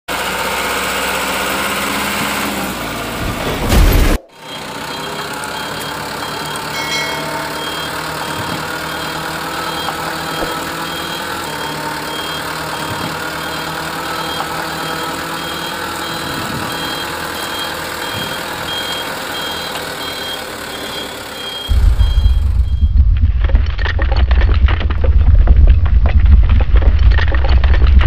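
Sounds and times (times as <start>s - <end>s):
truck engine idling: 0.1s - 27.8s
short high beeps: 4.4s - 23.0s.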